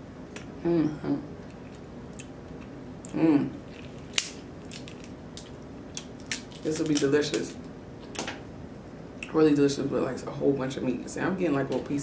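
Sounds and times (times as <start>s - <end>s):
crab shell cracking: 1.5s - 8.3s.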